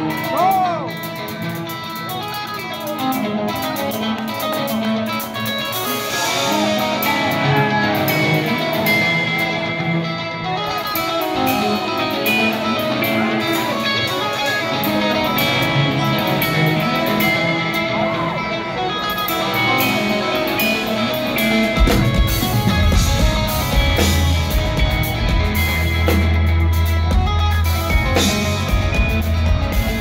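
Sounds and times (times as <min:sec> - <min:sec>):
drums: 0:00.0 - 0:30.0
fast electric guitar lines: 0:00.0 - 0:30.0.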